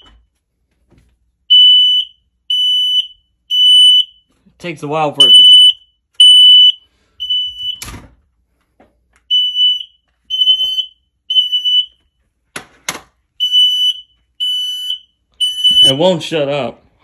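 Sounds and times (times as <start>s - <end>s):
smoke alarm beeping: 0.0s - 0.4s, 1.4s - 4.4s, 5.1s - 7.9s, 9.2s - 12.2s, 13.3s - 16.4s.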